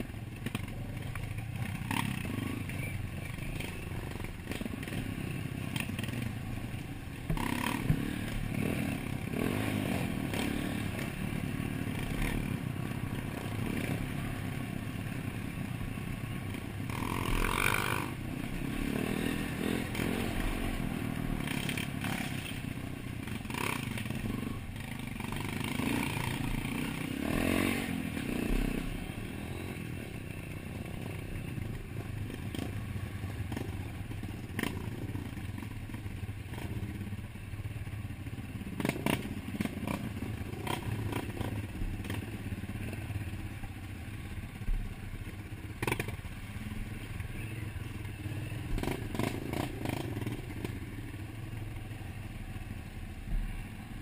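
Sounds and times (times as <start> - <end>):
dirt bike engine revving: 1.6 - 6.5, 7.3 - 14.6, 16.5 - 30.0, 48.4 - 50.7.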